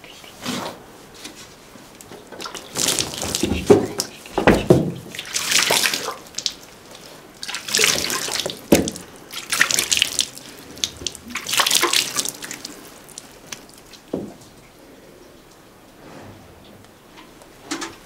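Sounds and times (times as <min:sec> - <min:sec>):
water splashing and running: 0:02.4 - 0:14.5.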